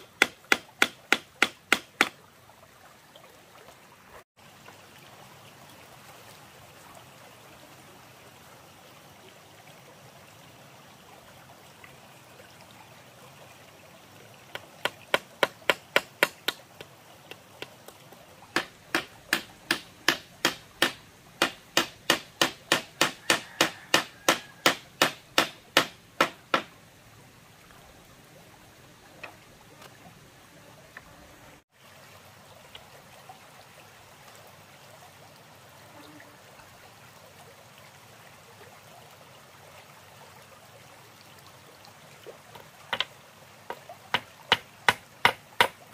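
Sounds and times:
hammer nailing bamboo slats: 0:00.0 - 0:02.2, 0:15.1 - 0:16.6, 0:18.6 - 0:26.7, 0:44.2 - 0:45.8
shallow stream rushing: 0:00.0 - 0:45.9.

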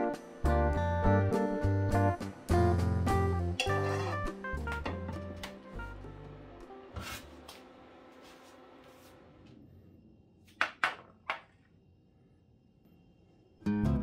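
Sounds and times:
background music: 0:00.0 - 0:08.7.

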